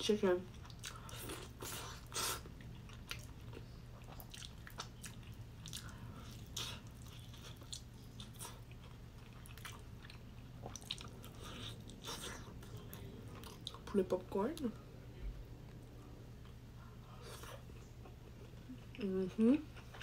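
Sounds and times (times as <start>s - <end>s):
steady low hum: 0.0s - 20.0s
crunchy chewing: 0.5s - 13.8s.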